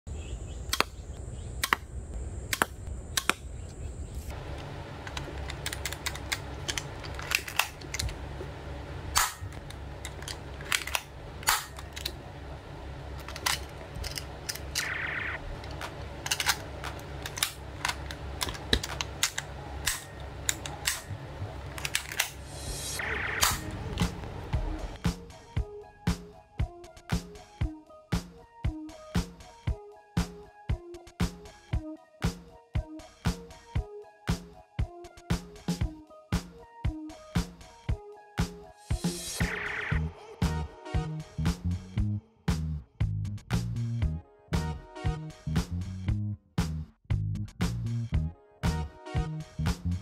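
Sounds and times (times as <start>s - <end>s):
pistol metallic clicks and snaps: 0.7s - 1.0s, 1.6s - 1.9s, 2.5s - 3.5s, 15.8s - 21.1s.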